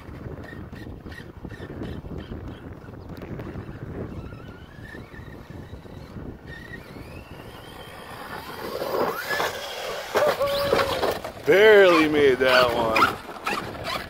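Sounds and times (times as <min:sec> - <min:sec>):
electric motor whining: 0:02.8 - 0:14.0.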